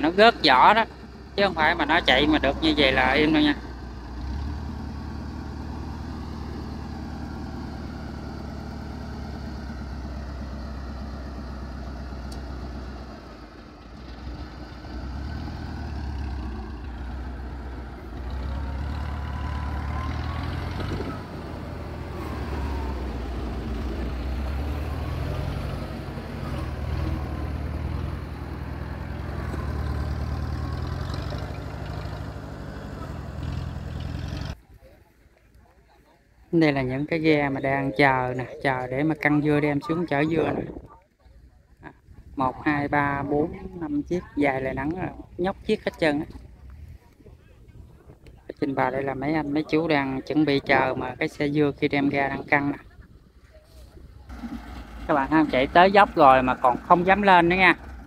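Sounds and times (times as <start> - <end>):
motor cart engine running: 0.0 - 34.6, 54.1 - 58.0.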